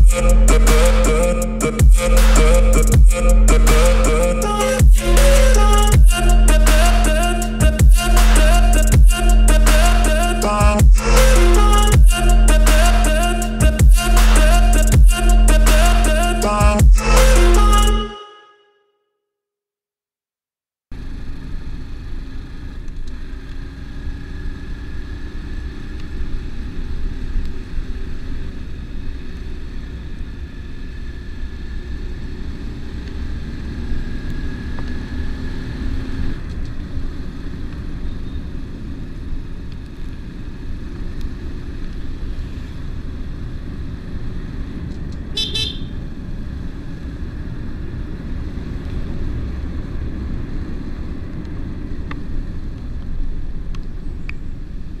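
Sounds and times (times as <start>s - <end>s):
wind and road noise: 0.0s - 0.8s, 20.9s - 55.0s
motorcycle engine running: 0.0s - 17.9s, 45.4s - 46.1s
short horn beep: 17.4s - 18.8s, 45.4s - 46.0s.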